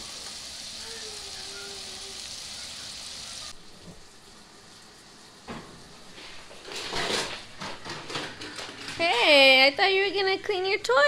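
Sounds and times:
meatballs sizzling in oil: 0:00.0 - 0:07.5
plastic toys clattering: 0:06.6 - 0:09.6.

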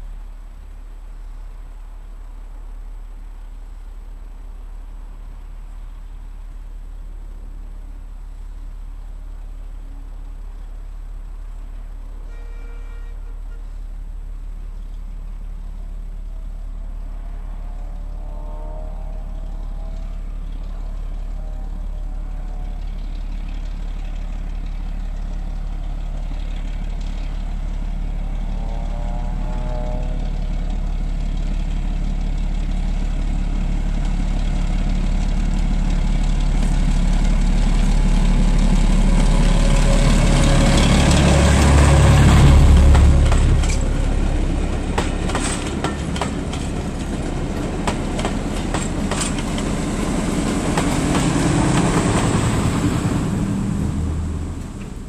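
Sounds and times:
diesel locomotive engine passing: 0:11.2 - 0:55.0
train wheels clicking over rail joints: 0:30.3 - 0:55.0.

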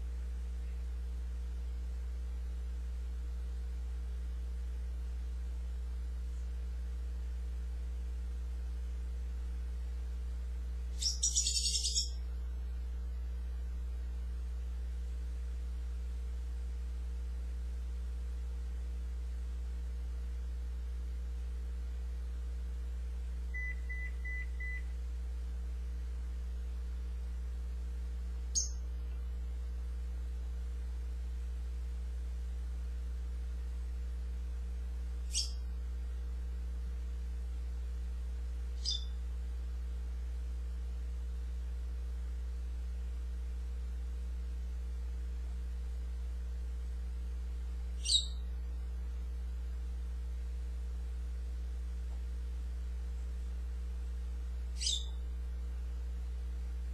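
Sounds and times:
parrot chattering and whistling: 0:54.8 - 0:55.1.

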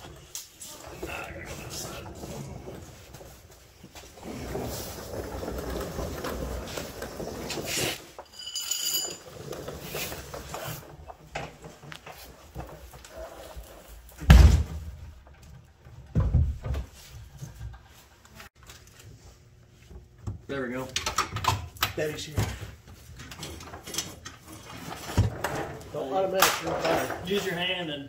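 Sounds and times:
metallic clink: 0:08.3 - 0:09.2.

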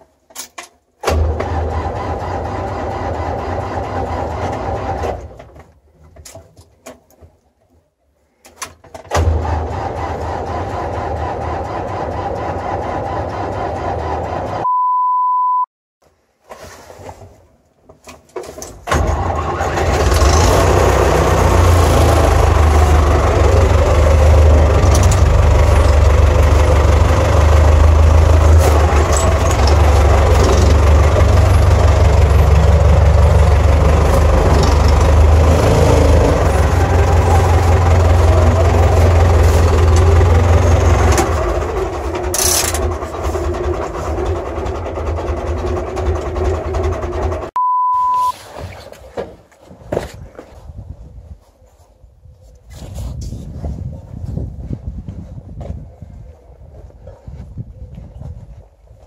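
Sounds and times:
tractor diesel engine running: 0:01.0 - 0:05.5, 0:09.2 - 0:14.6, 0:18.9 - 0:47.6
steady beep: 0:14.6 - 0:15.7, 0:47.6 - 0:48.3.

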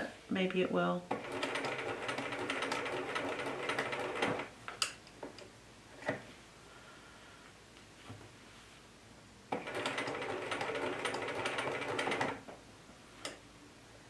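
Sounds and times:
sewing machine stitching: 0:01.1 - 0:04.5, 0:09.5 - 0:12.4.

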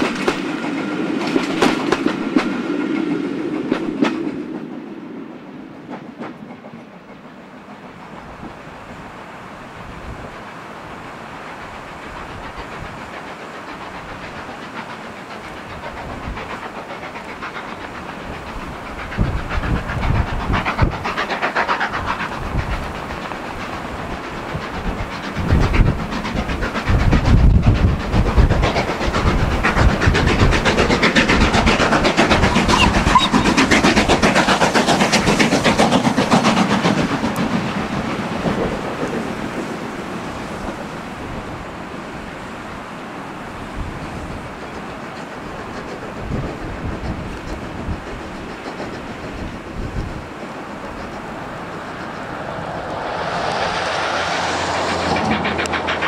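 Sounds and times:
train wheels clicking over rail joints: 0:00.0 - 0:04.8, 0:05.7 - 0:41.7, 0:43.4 - 0:56.0
steam locomotive exhaust beats: 0:00.0 - 0:56.0.

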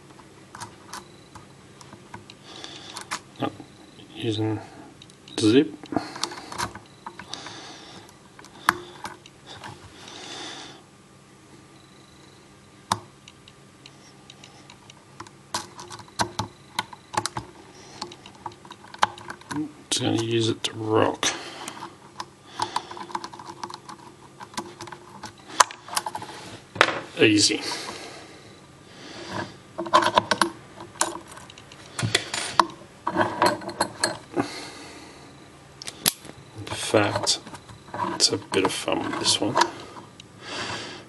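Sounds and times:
padlock metallic clicking and rattling: 0:21.7 - 0:26.2, 0:29.8 - 0:34.2.

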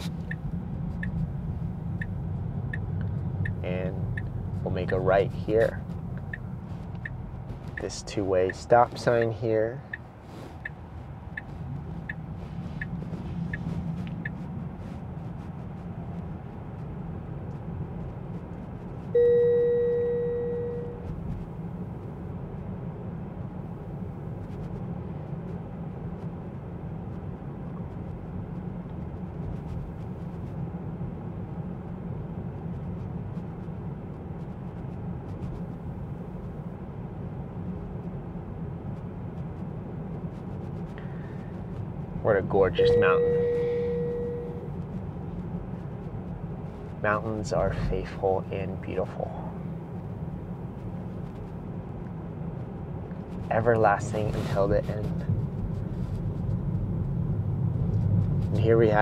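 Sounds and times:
road and tyre noise in car: 0:00.0 - 0:59.0
turn signal ticking: 0:00.1 - 0:22.7, 0:38.9 - 0:47.0
car chime: 0:19.2 - 0:21.1, 0:42.7 - 0:44.7.

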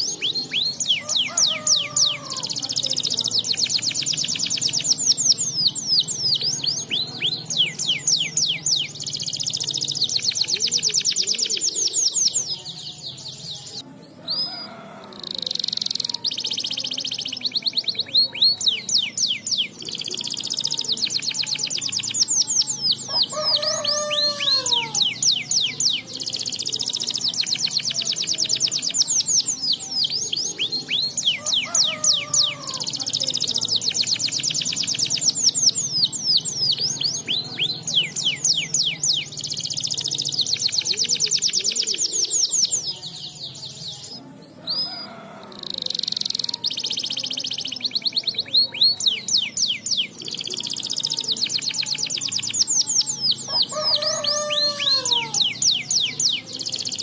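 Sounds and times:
canary singing trills: 0:00.0 - 0:57.0.

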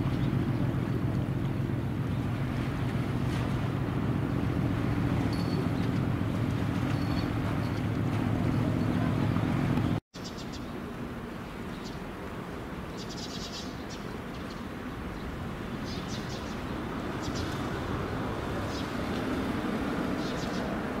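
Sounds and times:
ship engine droning: 0:00.0 - 0:10.0.

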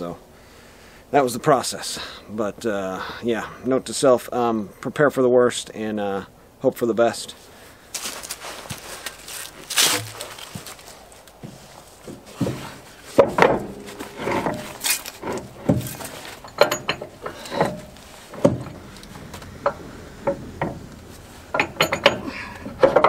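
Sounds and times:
metal knocks and clinks: 0:13.2 - 0:18.8, 0:21.5 - 0:23.0.

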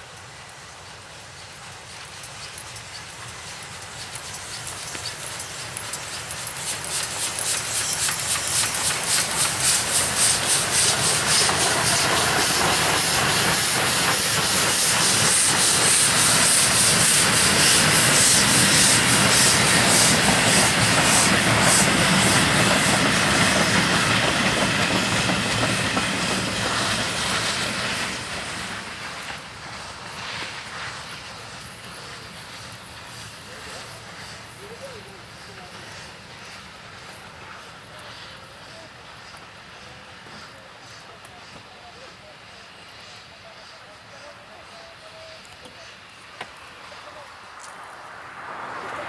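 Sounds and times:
steam locomotive chuffing: 0:00.0 - 0:49.0.

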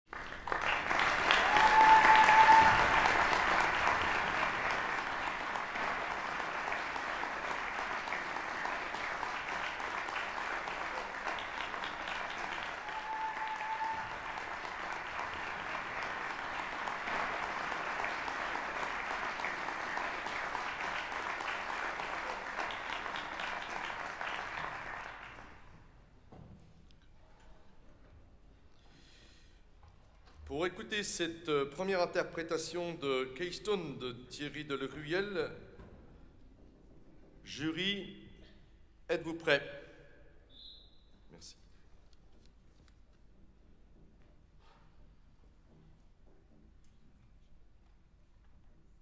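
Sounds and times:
audience applauding: 0:00.0 - 0:25.7.

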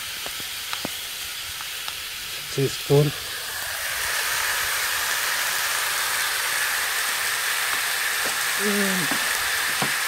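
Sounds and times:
meat sizzling in a wok: 0:00.0 - 0:10.0.

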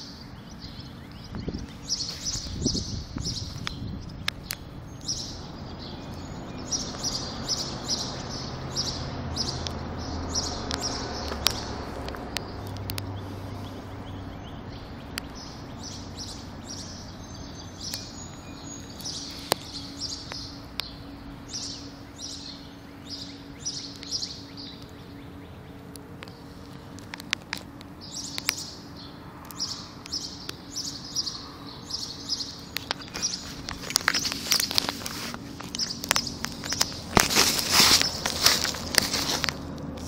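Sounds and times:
low steady hum: 0:00.0 - 0:40.0
songbirds chirping: 0:00.0 - 0:40.0
sharp clicks: 0:09.5 - 0:13.8, 0:25.8 - 0:28.7, 0:32.6 - 0:40.0.

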